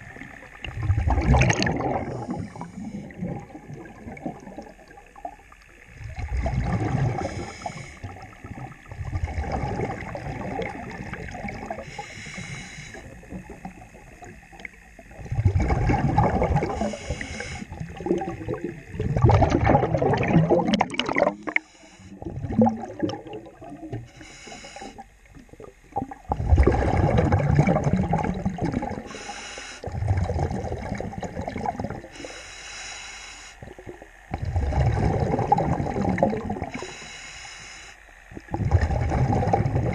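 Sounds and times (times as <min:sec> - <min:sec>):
exhaled air bubbling: 0:00.0 - 0:32.6, 0:33.6 - 0:37.2, 0:38.2 - 0:39.9
regulator inhale hiss: 0:02.0 - 0:03.3, 0:07.1 - 0:08.7, 0:11.6 - 0:13.4, 0:16.6 - 0:17.9, 0:21.3 - 0:22.3, 0:23.9 - 0:25.1, 0:29.0 - 0:30.0, 0:32.0 - 0:33.8, 0:36.6 - 0:38.2.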